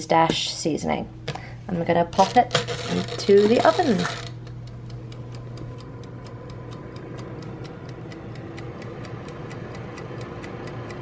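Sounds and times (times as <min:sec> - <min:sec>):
oven humming: 0:00.0 - 0:11.0
wind-up timer ticking: 0:02.6 - 0:11.0.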